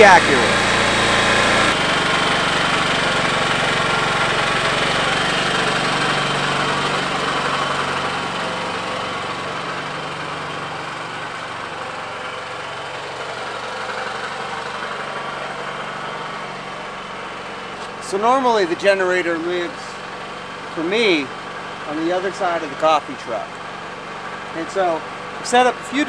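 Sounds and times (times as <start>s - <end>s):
generator engine idling: 0.0s - 26.0s.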